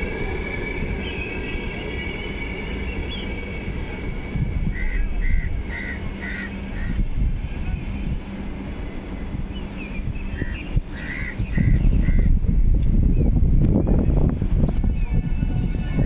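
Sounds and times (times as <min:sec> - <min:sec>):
train rumbling on tracks: 0:00.0 - 0:16.0
crow cawing: 0:04.8 - 0:07.0, 0:10.4 - 0:12.3.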